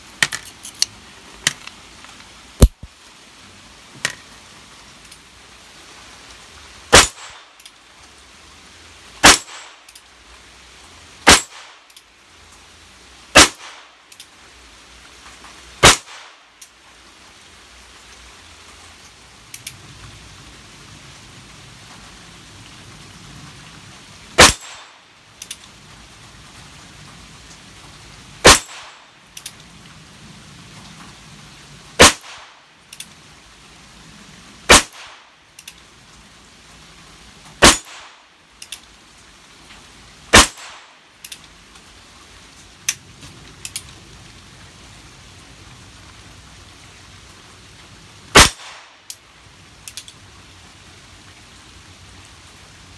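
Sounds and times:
revolver gunshots: 24.4 - 24.9, 28.4 - 29.0, 32.0 - 32.5, 34.7 - 35.2, 37.6 - 38.2, 40.3 - 40.9, 48.4 - 48.9.

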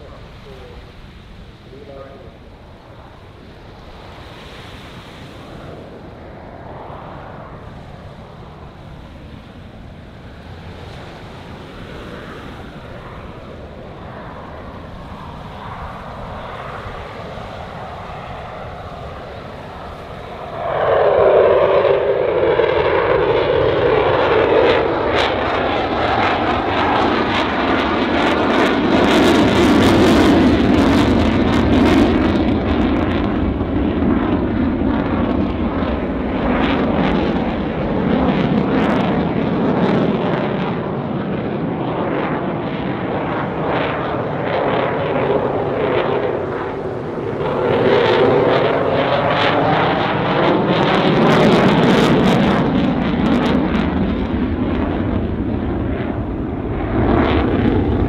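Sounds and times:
jet roar passing: 0.0 - 58.0.

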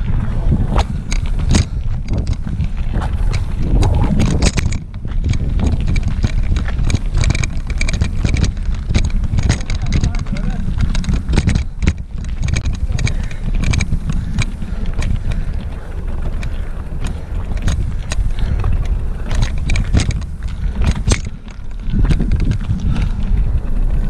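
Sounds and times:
wind buffeting microphone: 0.0 - 24.0
bike rattling knocks: 0.7 - 24.0.

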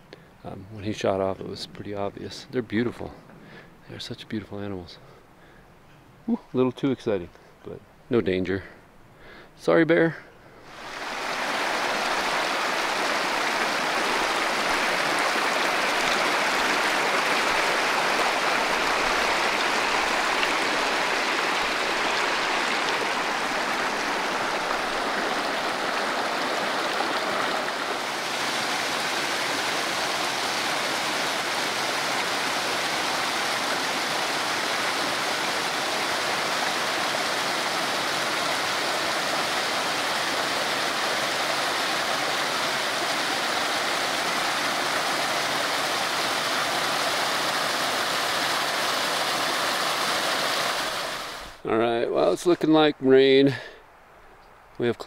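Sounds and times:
stream water flowing: 10.6 - 54.8.

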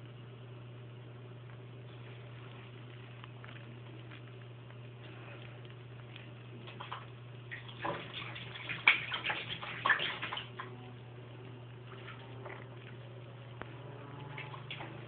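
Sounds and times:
steady low hum: 0.0 - 15.0
cat pawing at bath water: 6.5 - 10.7, 14.3 - 15.0.

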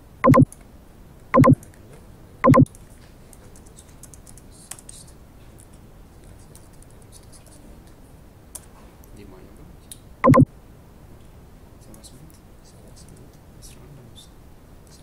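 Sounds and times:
short buzzing tones: 0.2 - 0.4, 2.4 - 2.7, 10.2 - 10.5.

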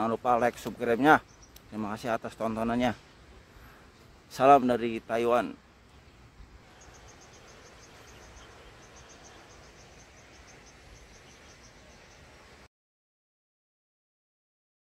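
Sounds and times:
low outdoor hiss: 0.0 - 12.7
faint insect chirping: 1.2 - 1.8, 5.6 - 12.7.

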